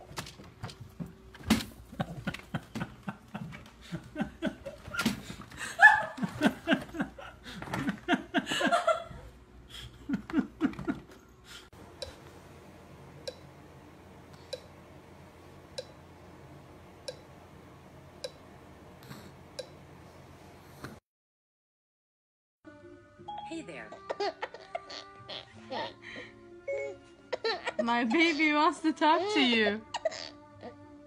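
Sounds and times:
soft repeating click: 13.2s - 13.5s, 15.8s - 16.0s.

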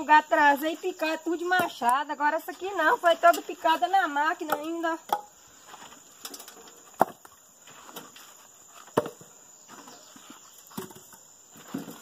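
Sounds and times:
logs knocking together: 4.4s - 12.0s.

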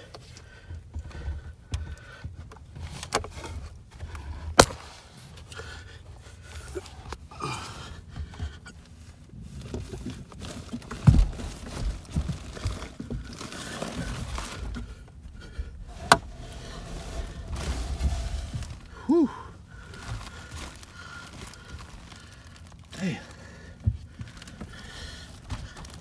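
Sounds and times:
knocks and scraping in attic: 0.0s - 26.0s
person grunting: 19.0s - 19.5s.

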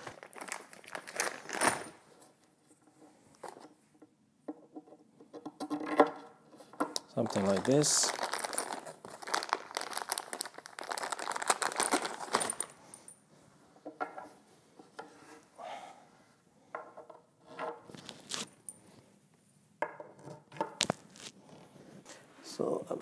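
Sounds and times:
plastic bags crinkling: 0.0s - 2.1s, 7.0s - 13.1s, 17.9s - 18.5s, 20.8s - 21.3s.

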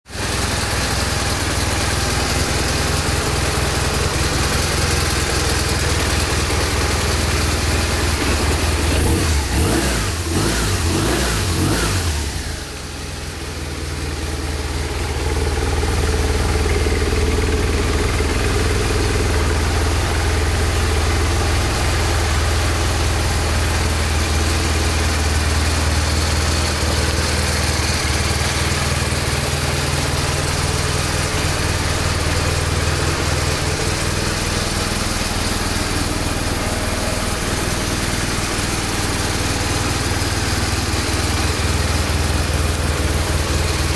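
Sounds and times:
motorcycle engine idling: 0.1s - 43.9s.

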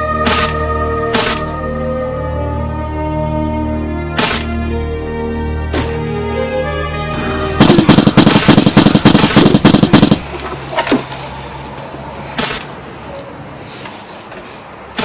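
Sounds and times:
film music with sustained tones: 0.0s - 10.2s
rapid rattle of sharp bangs: 4.2s - 4.6s, 7.6s - 10.4s, 12.4s - 12.7s.

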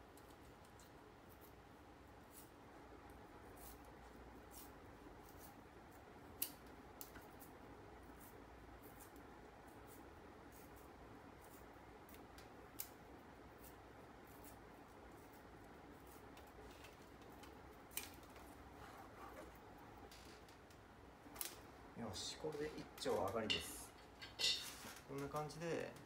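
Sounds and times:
bamboo splitting crackle: 6.4s - 7.5s, 16.2s - 18.5s, 20.1s - 21.6s.

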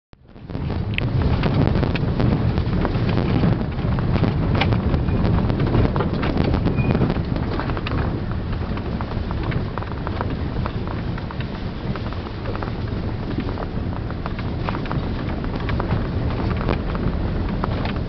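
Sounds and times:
engine and tyres droning: 0.2s - 18.0s
knocks and rattles in van: 0.4s - 18.0s.

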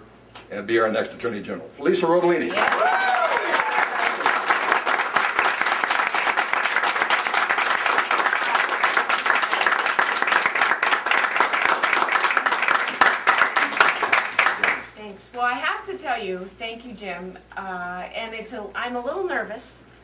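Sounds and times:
crowd clapping: 2.5s - 15.0s.

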